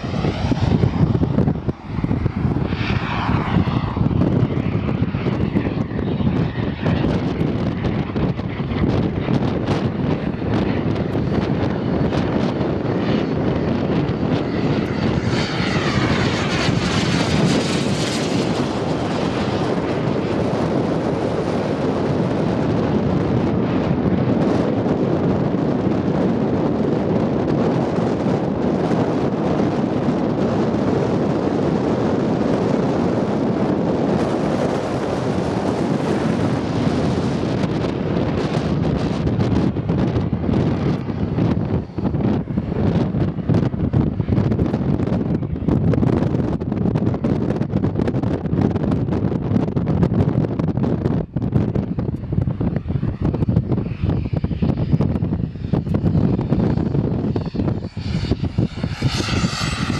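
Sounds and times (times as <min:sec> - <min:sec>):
model jet engines rushing: 0:00.0 - 0:59.9.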